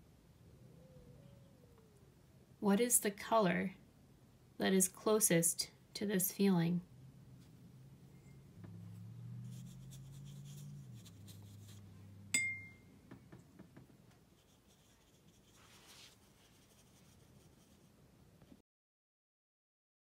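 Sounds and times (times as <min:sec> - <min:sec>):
low hum: 0:06.8 - 0:13.5
paintbrush rubbing on paper: 0:08.9 - 0:11.9, 0:14.3 - 0:18.0
sharp clink with high ring: 0:12.4 - 0:12.9.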